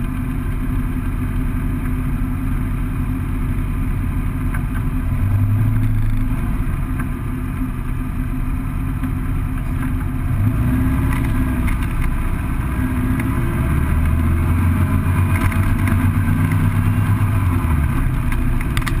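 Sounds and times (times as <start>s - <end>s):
engine revving through gears: 5.0s - 7.1s, 9.8s - 19.0s.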